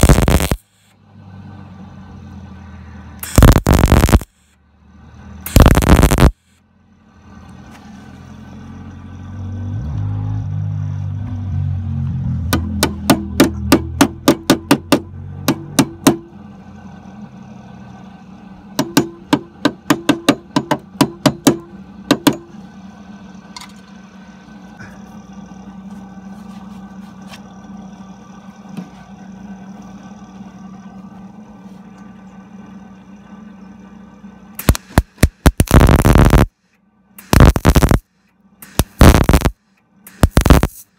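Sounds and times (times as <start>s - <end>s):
welding arc crackling: 0.0s - 0.9s, 3.2s - 4.6s, 5.4s - 6.6s, 34.6s - 36.6s, 37.2s - 40.9s
steady hum: 0.0s - 7.0s, 12.5s - 40.9s
sharp knocks: 18.8s - 22.5s.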